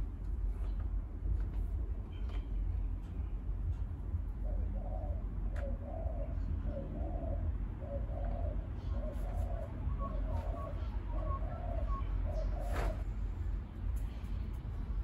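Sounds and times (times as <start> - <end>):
steady low rumble: 0.0 - 15.0
bird calling low notes: 4.4 - 13.1.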